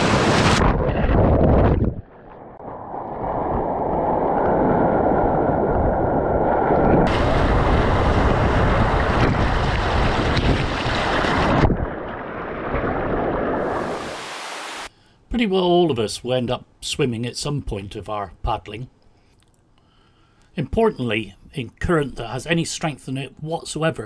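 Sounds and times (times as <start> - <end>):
water splashing on microphone: 6.7 - 14.9
river rapid rushing water: 13.6 - 14.9.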